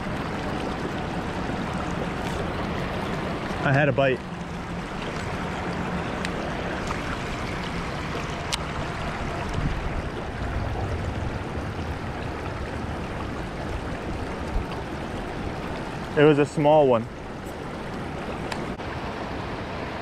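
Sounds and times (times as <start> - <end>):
river water rushing over rocks: 0.0 - 20.0.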